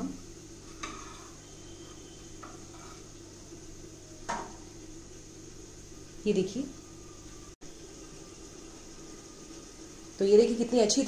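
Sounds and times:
baking plate scraping metal rack: 0.7s - 1.4s, 2.4s - 3.1s.

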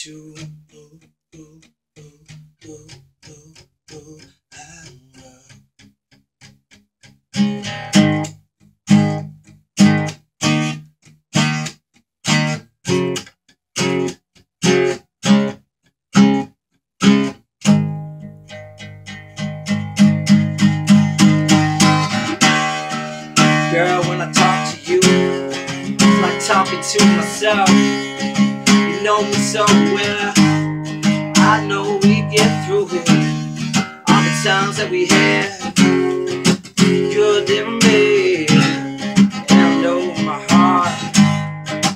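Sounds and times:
acoustic guitar strumming: 7.4s - 10.8s, 11.4s - 15.6s, 16.2s - 41.9s.

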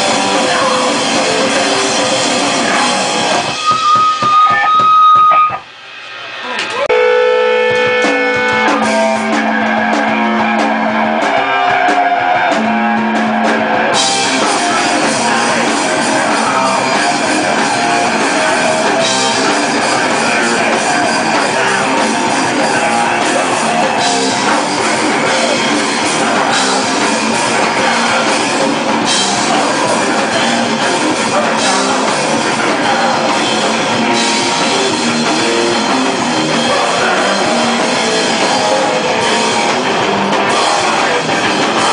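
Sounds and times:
rock band playing live: 0.0s - 41.9s
electric guitar sustained note: 1.9s - 11.5s.

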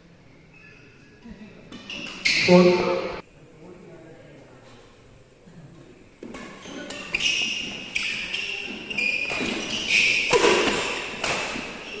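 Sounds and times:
shoes squeaking on court floor: 1.7s - 3.2s, 6.3s - 12.0s
rackets hitting shuttlecock: 6.2s - 11.9s.

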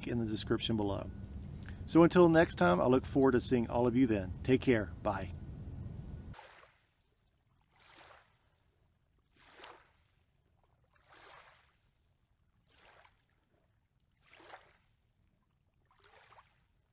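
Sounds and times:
small waves lapping on sand: 6.3s - 15.1s, 15.8s - 16.9s.

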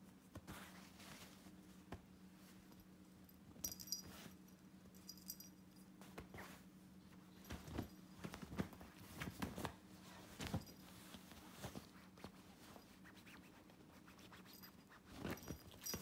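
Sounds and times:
bedding rustling: 0.2s - 2.8s, 3.6s - 16.0s
light metallic jingle: 2.6s - 5.9s, 14.4s - 16.0s
kittens thumping on bedding: 7.4s - 12.0s.

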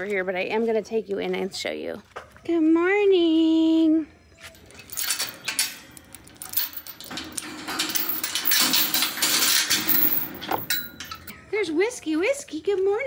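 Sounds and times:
metal chain rattling against gate: 4.6s - 11.4s.

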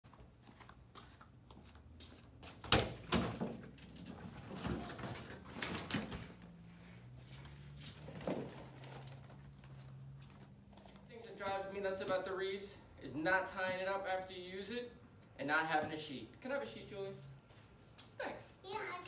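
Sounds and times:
stretcher rustling: 4.0s - 11.1s.

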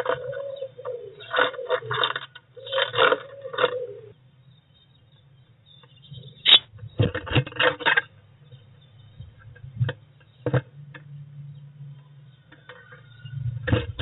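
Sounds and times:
pigeon cooing: 0.0s - 4.2s.

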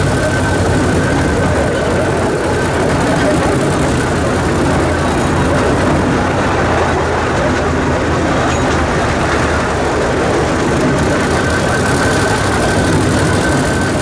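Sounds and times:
miniature train engine running: 0.0s - 14.0s
wheels rumbling on rails: 0.0s - 14.0s.

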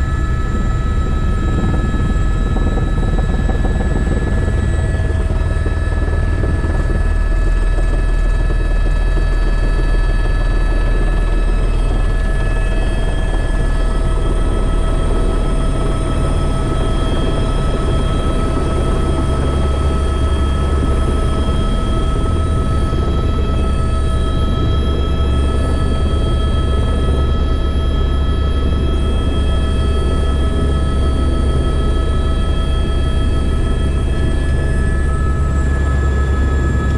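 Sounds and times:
helicopter rotor thrum: 0.0s - 36.9s
turbine whine: 0.0s - 36.9s.

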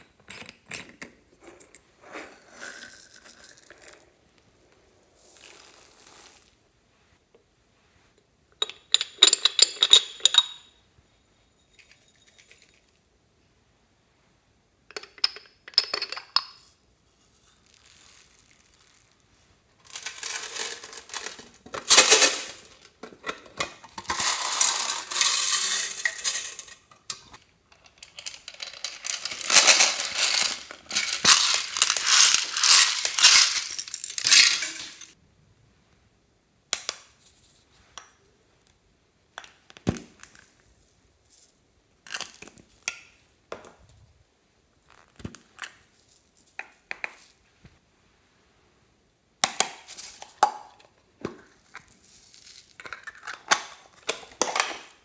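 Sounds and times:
beads rattling in plastic containers: 2.2s - 4.1s, 5.2s - 6.6s, 19.8s - 35.2s, 51.6s - 55.0s.

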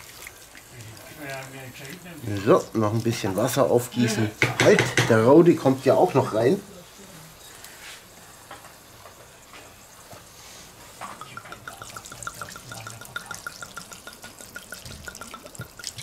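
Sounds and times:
wine glugging from a bottle: 11.0s - 16.0s.

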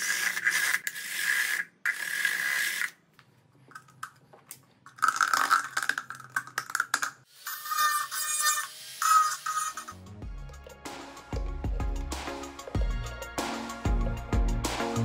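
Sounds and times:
cordless drill boring plastic: 7.3s - 10.0s.

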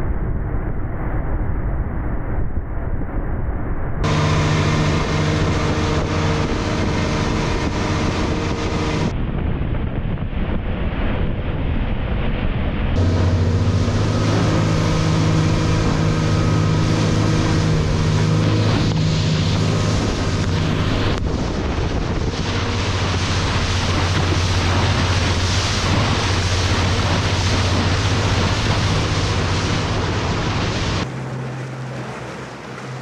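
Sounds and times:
rush of boat wake: 0.0s - 33.0s
outboard motor running: 4.0s - 9.2s, 13.0s - 33.0s
wind buffeting microphone: 4.0s - 33.0s.

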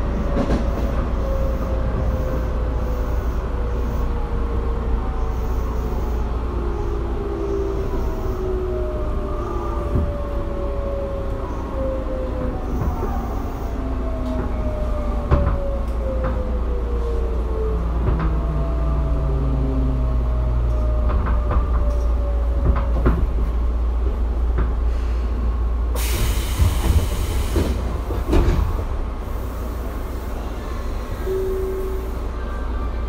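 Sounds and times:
air hiss: 26.0s - 27.9s.

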